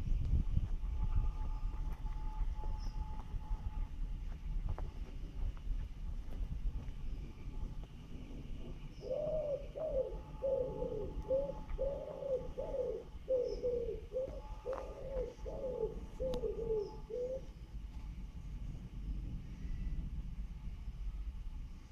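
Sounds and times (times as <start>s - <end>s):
pigeon cooing: 9.0s - 17.5s.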